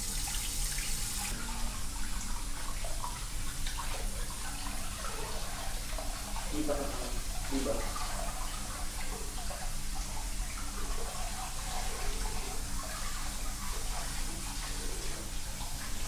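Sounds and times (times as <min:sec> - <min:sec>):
water running from a tap: 0:00.0 - 0:16.0.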